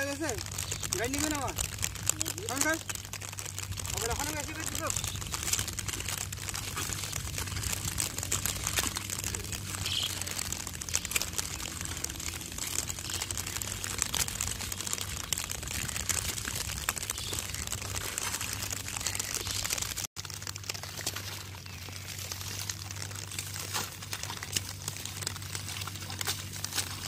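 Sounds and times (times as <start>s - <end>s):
hoes squelching in wet mud: 0.0s - 27.0s.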